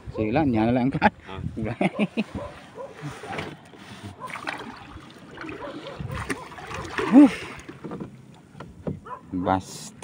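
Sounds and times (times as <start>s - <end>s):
water splashing against a boat: 2.9s - 9.1s.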